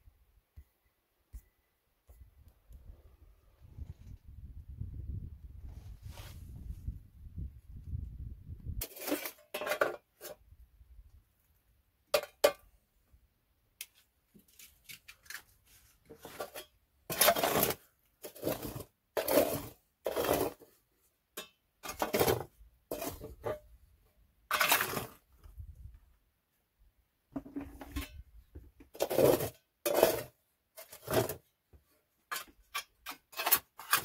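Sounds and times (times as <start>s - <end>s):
household objects scraping and clinking: 8.8s - 10.4s, 14.4s - 20.8s, 21.4s - 23.7s, 24.5s - 25.3s, 28.9s - 31.5s, 32.2s - 34.0s.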